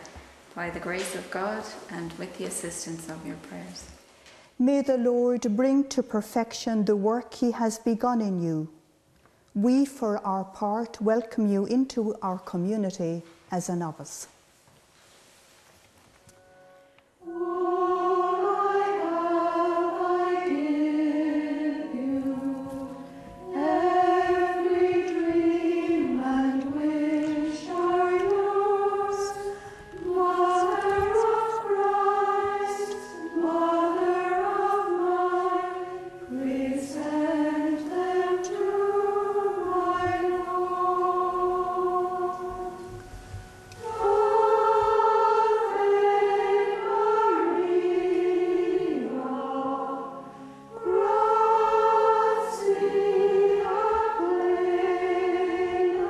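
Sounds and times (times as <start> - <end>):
women's choir singing: 17.2 - 56.0.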